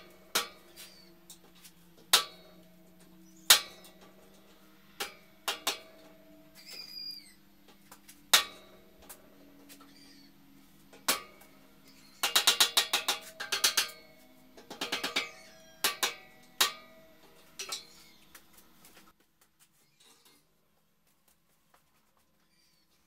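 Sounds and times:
hammer striking steel: 0:00.0 - 0:01.2, 0:02.1 - 0:06.8, 0:08.3 - 0:09.4, 0:11.0 - 0:18.0
steel frame ringing: 0:00.0 - 0:07.4, 0:08.3 - 0:18.2.

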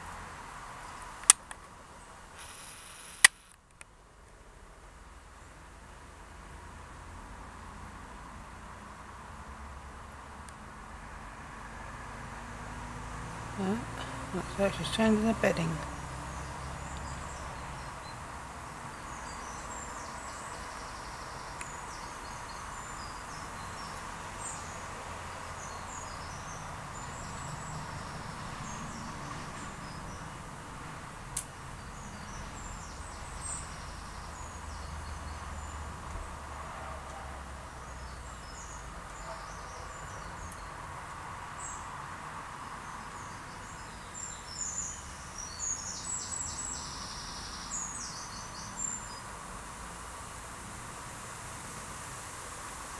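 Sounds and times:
small birds chirping: 0:02.0 - 0:03.5, 0:13.6 - 0:30.4, 0:31.5 - 0:36.4, 0:37.7 - 0:49.4
sharp click: 0:02.4 - 0:03.9.

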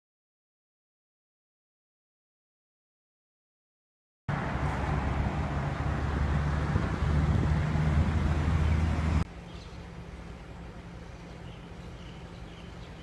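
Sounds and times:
loud outdoor rumble with hum: 0:04.3 - 0:13.0
faint bird chirps: 0:09.4 - 0:13.0.

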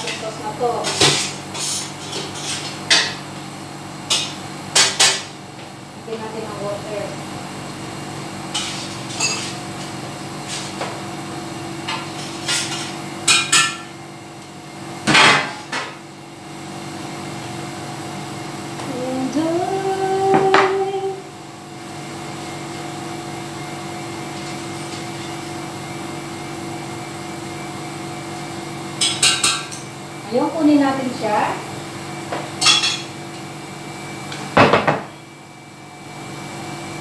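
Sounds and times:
pans and utensils clattering: 0:08.6 - 0:09.6, 0:32.6 - 0:33.1
steady hum: 0:17.3 - 0:24.2.

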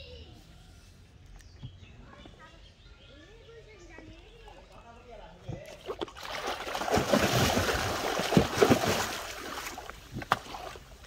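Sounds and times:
water splashing and sloshing: 0:04.5 - 0:11.0.

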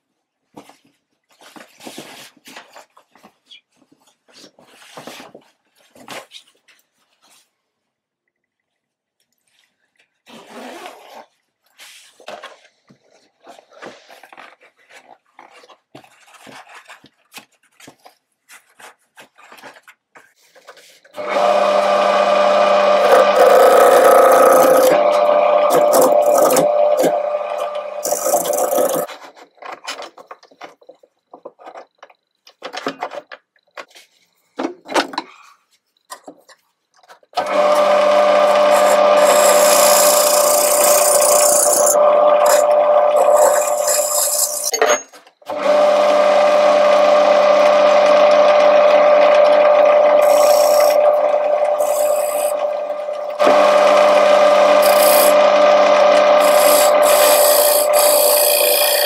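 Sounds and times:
lathe motor hum: 0:21.2 - 0:29.1, 0:37.4 - 0:44.7, 0:45.5 - 0:59.0
gouge scraping wood: 0:22.8 - 0:29.1, 0:38.4 - 0:44.7, 0:50.1 - 0:52.8, 0:53.4 - 0:59.0.

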